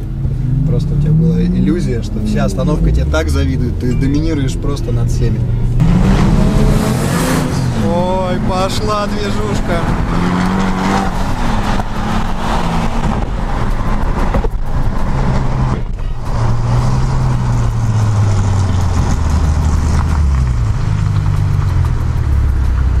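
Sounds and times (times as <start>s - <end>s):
car engines accelerating in traffic: 0.0s - 23.0s.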